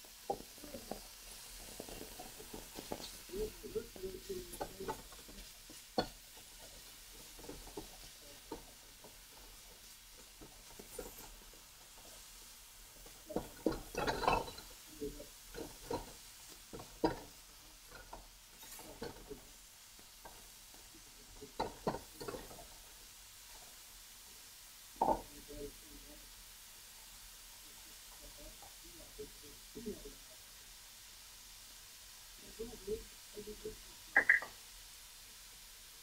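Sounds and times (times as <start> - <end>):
meat sizzling: 0.0 - 36.0
plastic turner scraping a wok: 0.1 - 12.3.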